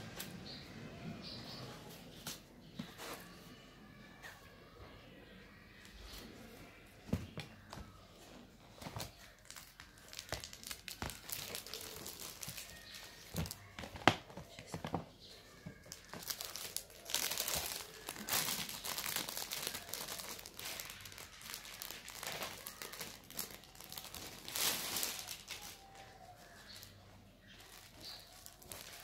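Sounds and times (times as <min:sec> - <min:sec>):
plastic packaging crinkling: 0:08.8 - 0:14.2, 0:15.7 - 0:29.0.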